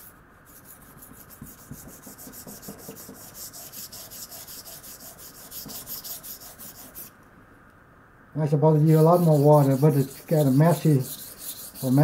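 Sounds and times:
knife scraping on whetstone: 0.0 - 7.1, 8.8 - 12.0.

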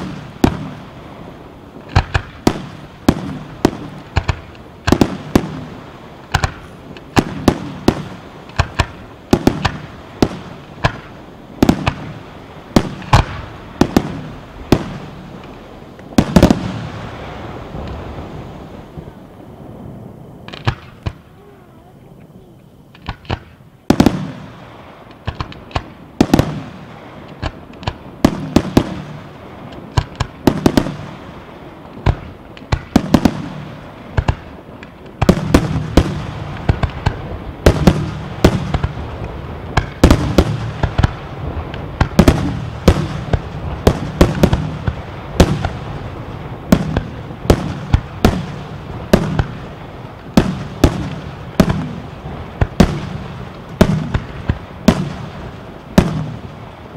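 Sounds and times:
firework shells bursting: 1.8 - 18.1, 20.4 - 21.4, 22.9 - 56.9.

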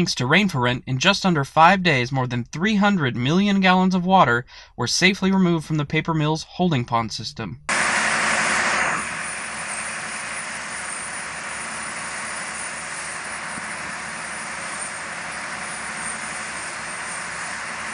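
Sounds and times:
low rapid engine pulse: 7.7 - 17.9
water gushing from pumps: 7.7 - 17.9.

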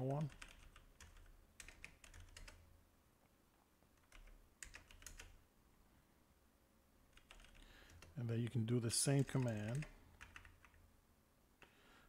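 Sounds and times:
faint keyboard typing: 0.0 - 2.7, 3.8 - 5.4, 7.1 - 10.9, 11.6 - 11.8.

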